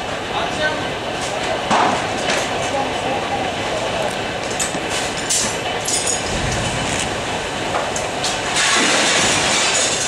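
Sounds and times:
fire rushing: 0:02.0 - 0:10.0
fire cracking and popping: 0:06.3 - 0:10.0.

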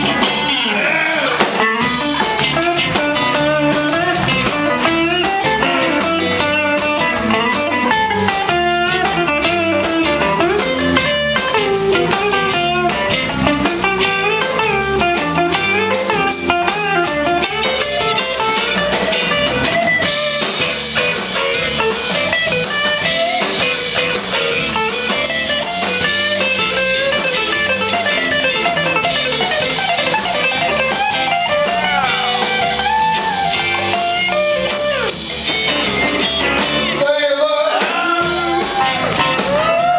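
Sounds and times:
electric guitar solo: 0:00.0 - 0:36.9, 0:38.2 - 0:39.9
bass guitar: 0:00.0 - 0:39.9
drums: 0:00.0 - 0:39.9.

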